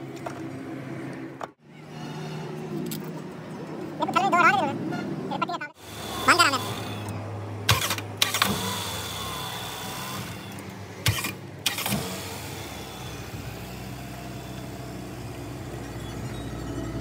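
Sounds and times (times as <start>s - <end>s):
car engine running: 5.4s - 17.0s.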